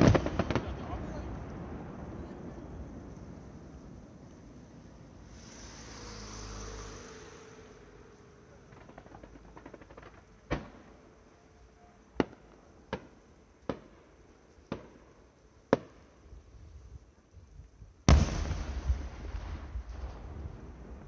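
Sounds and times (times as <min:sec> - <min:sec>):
distant fireworks bangs: 0:00.0 - 0:03.8, 0:08.6 - 0:11.2, 0:12.2 - 0:15.1, 0:15.7 - 0:16.2, 0:18.1 - 0:21.0.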